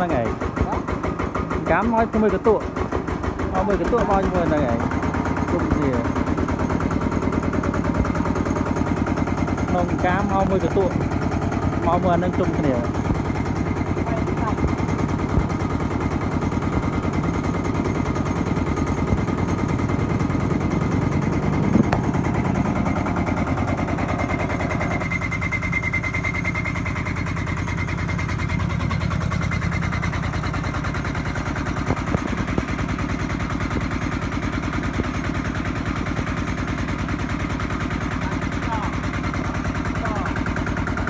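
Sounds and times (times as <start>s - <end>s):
diesel engine chugging: 0.0s - 41.0s
rice mill milling paddy: 0.0s - 41.0s.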